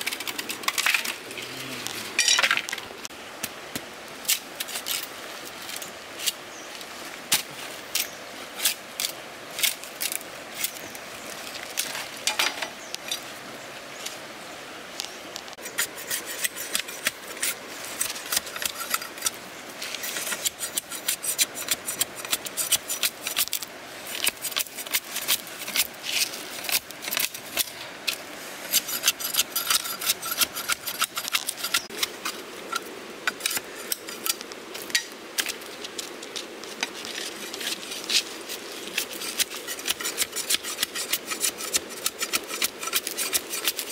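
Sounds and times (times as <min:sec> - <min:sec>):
machete scraping bamboo: 0:15.6 - 0:36.1, 0:36.7 - 0:43.9.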